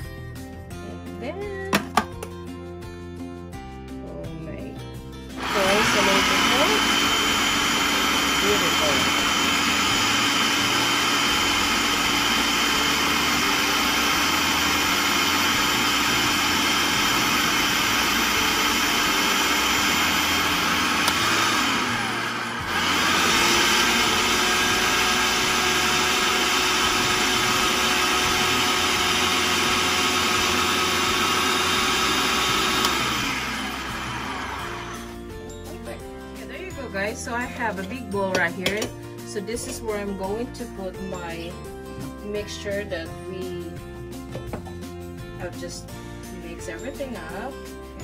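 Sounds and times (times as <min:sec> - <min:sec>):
food processor motor running: 0:05.3 - 0:35.2.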